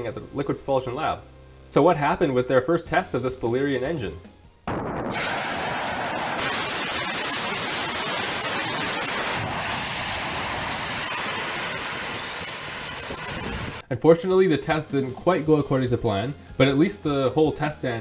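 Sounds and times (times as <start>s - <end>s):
rocket engine roaring: 4.7s - 13.8s
faint rising whistle: 12.4s - 13.3s.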